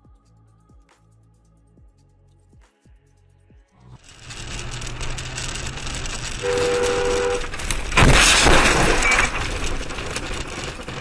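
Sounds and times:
car road noise on snow: 4.0 - 11.0
loud crash: 4.0 - 11.0
car horn: 4.3 - 9.4.

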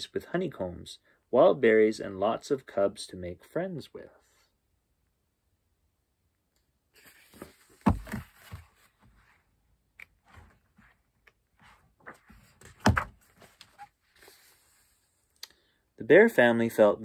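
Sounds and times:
dull thumps: 7.4 - 8.8.

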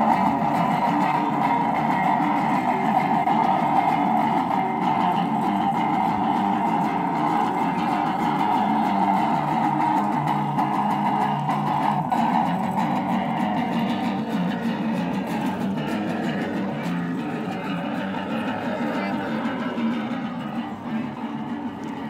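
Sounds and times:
amplified electric guitar: 0.0 - 22.0.

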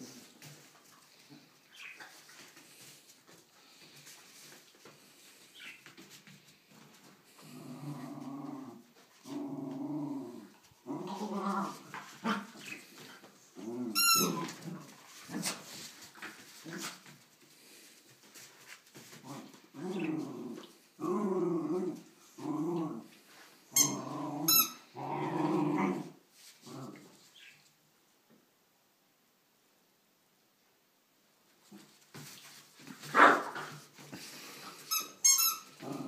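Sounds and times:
dogs growling in play: 6.5 - 18.4, 19.0 - 27.2, 35.7 - 36.0.

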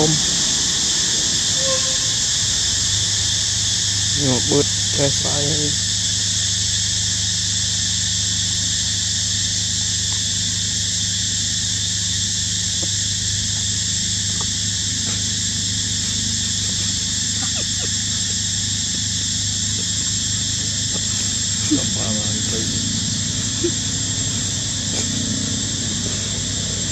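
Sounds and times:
insects droning: 0.0 - 26.9
low steady hum: 12.1 - 26.9.

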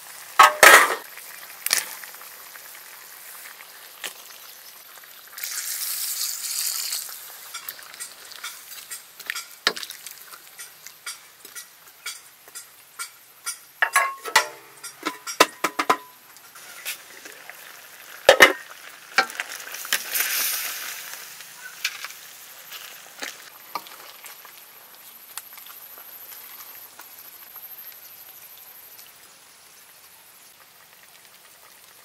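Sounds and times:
sizzling hiss: 0.0 - 32.0
ladle clanking against wok: 0.4 - 1.0, 10.6 - 16.2.

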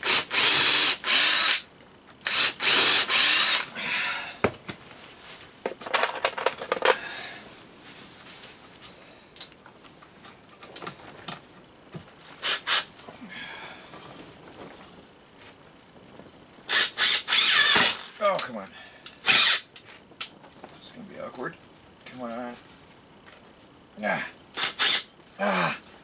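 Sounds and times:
cordless drill driving a screw: 0.0 - 3.7, 12.4 - 12.9, 16.7 - 18.1, 19.2 - 19.7, 24.6 - 25.1.

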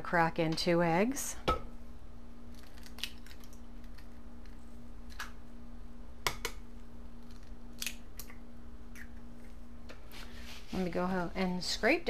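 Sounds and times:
steady low hum: 0.0 - 12.0
eggshells cracking: 2.5 - 5.4, 7.2 - 9.2.

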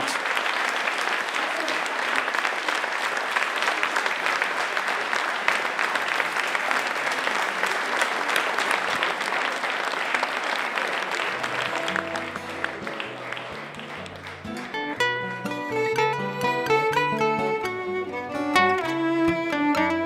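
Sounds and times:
audience applauding: 0.0 - 20.0
acoustic guitar music: 11.3 - 20.0.

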